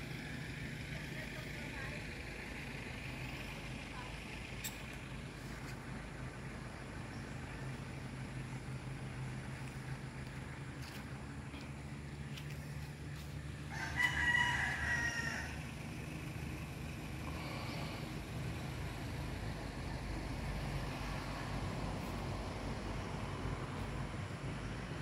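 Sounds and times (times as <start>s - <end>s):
rooster crowing: 13.6s - 15.7s.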